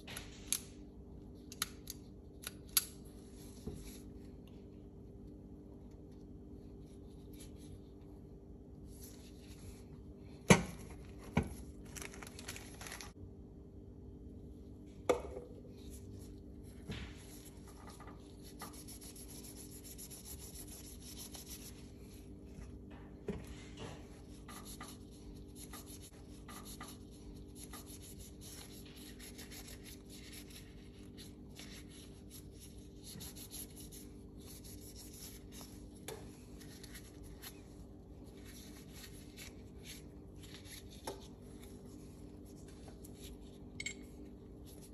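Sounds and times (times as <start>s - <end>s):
faint hum: 0.0s - 44.9s
gloved hands rubbing metal: 17.9s - 22.0s.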